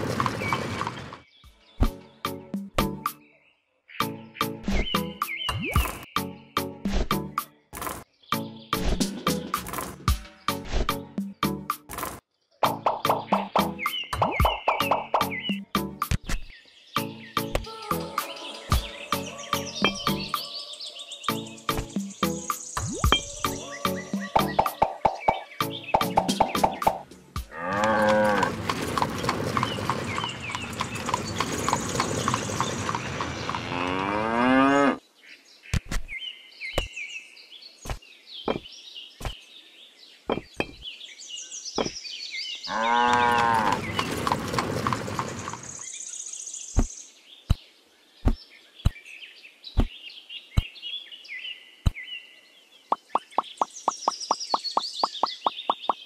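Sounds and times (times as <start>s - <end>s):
birds chirping: 0.0s - 56.0s
cattle mooing: 27.5s - 28.6s, 33.5s - 35.0s, 42.7s - 43.9s.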